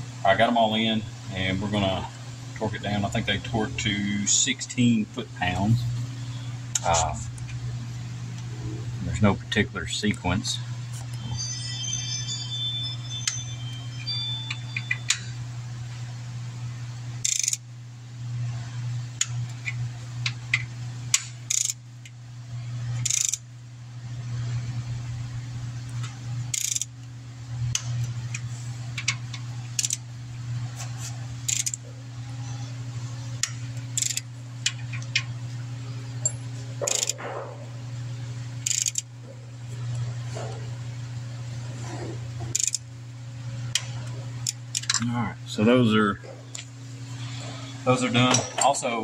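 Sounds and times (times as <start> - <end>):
steady low hum: 0.0 - 49.0
torque wrench clicks: 17.2 - 17.6, 20.2 - 21.8, 23.0 - 23.4, 26.5 - 26.9, 29.8 - 30.0, 31.5 - 31.8, 33.4 - 35.2, 36.8 - 37.2, 38.6 - 39.1, 42.6 - 42.8, 43.8 - 45.0
wrench ratcheting: 17.2 - 17.6, 21.1 - 21.8, 23.0 - 23.4, 26.5 - 26.9, 29.8 - 30.0, 31.5 - 31.8, 33.4 - 35.2, 36.8 - 37.2, 38.6 - 39.1, 42.5 - 42.8, 44.4 - 45.0.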